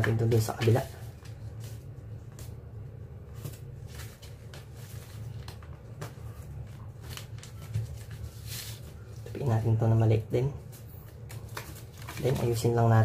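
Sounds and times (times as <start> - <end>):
low steady hum: 0.0 - 13.0
paper rustling and crinkling: 3.3 - 9.5, 10.7 - 13.0.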